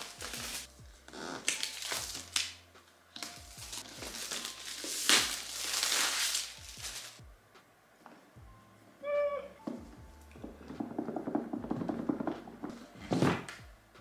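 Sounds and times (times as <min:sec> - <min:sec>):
plastic wrap crinkling and tearing: 0:00.0 - 0:02.6, 0:03.2 - 0:07.2.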